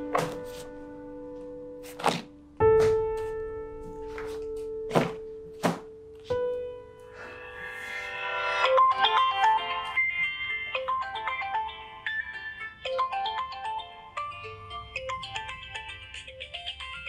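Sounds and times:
phone ringtone melody: 8.5 - 17.0.

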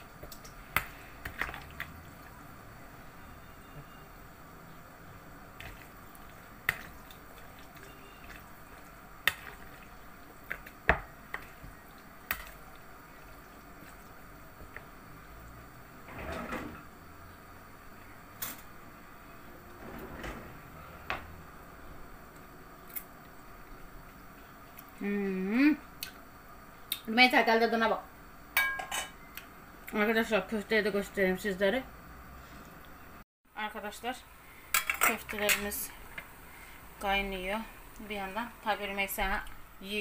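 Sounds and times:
stirring and scraping: 0.0 - 2.4, 5.5 - 15.6.

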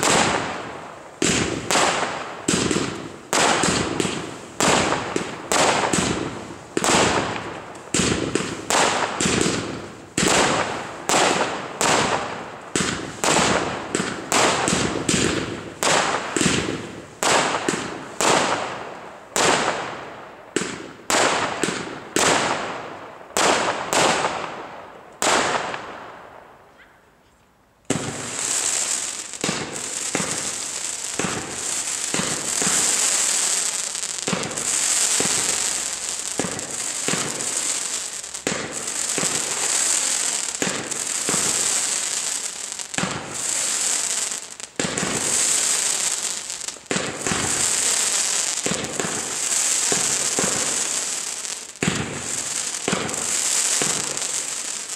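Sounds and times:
dense firework crackle: 0.0 - 26.1, 27.9 - 54.9
firework bangs: 0.0 - 26.2, 27.9 - 54.9.

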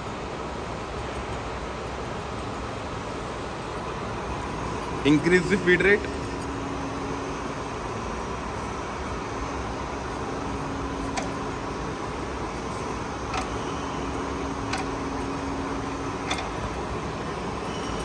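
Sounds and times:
milling machine hum: 0.1 - 18.0
selector dial clicks: 11.0 - 11.4, 13.2 - 13.6, 14.6 - 15.0, 16.2 - 16.7.

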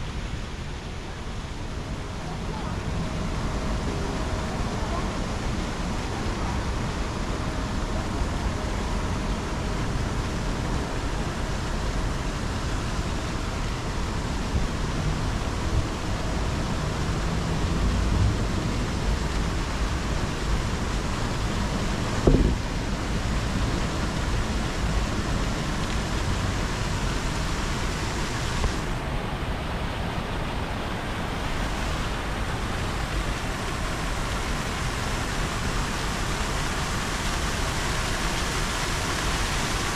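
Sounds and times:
fountain jets splashing: 0.0 - 39.9
low city rumble: 0.0 - 39.9.

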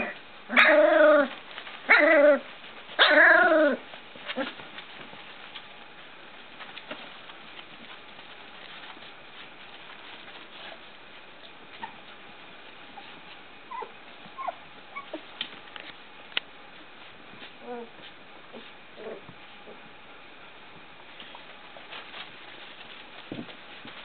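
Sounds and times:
puppy whining cry: 0.0 - 4.6, 13.0 - 15.3
puppies scuffling: 0.0 - 24.0.

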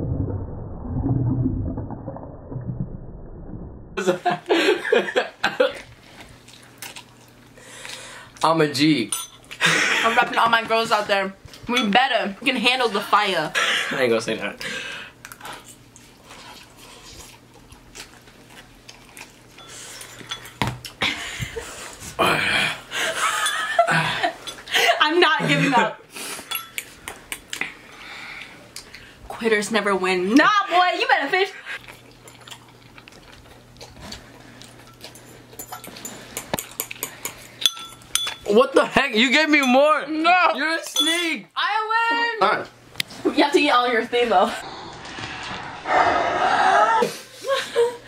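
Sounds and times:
slurping and chewing: 6.0 - 8.4, 15.2 - 21.0, 31.8 - 37.3.

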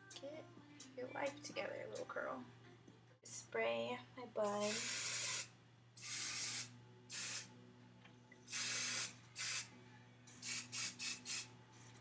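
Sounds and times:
aerosol hairspray hissing bursts: 4.6 - 7.5, 8.5 - 9.7, 10.4 - 11.5.

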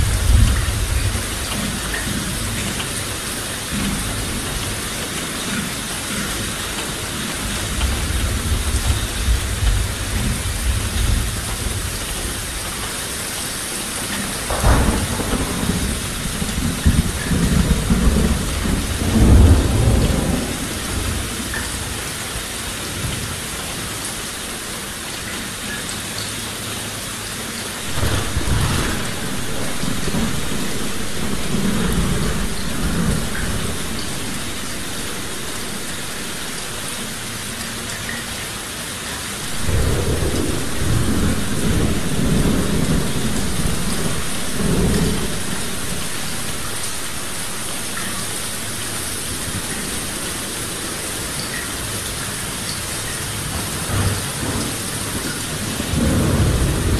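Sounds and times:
thunder rolling: 0.0 - 2.5, 14.2 - 21.8, 27.8 - 37.5, 39.4 - 50.5, 53.2 - 56.9
heavy rain: 0.0 - 56.9.

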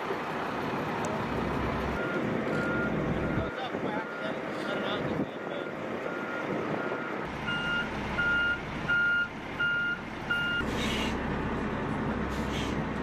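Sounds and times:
diesel engine running: 0.0 - 13.0
truck reversing alarm beeping: 1.9 - 4.4, 5.5 - 10.8.

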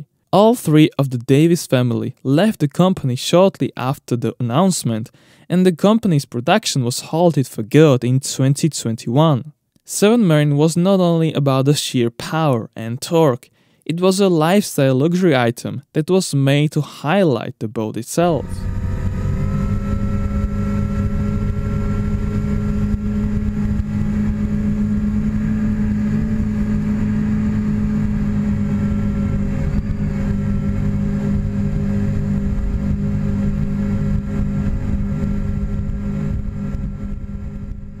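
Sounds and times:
outboard engines running: 18.4 - 38.0.

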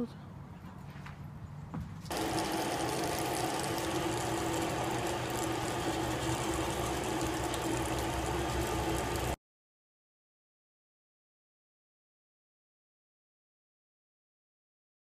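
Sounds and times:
electric blower whirring: 2.1 - 9.4
steady hum: 2.1 - 9.4.

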